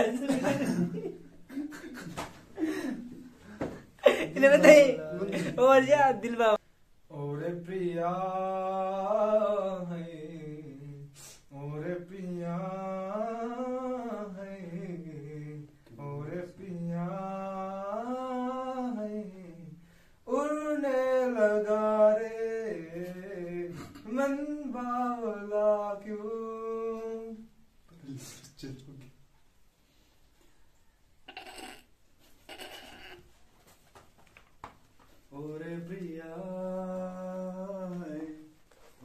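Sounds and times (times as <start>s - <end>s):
man singing unaccompanied: 4.0s - 28.1s, 35.2s - 39.0s.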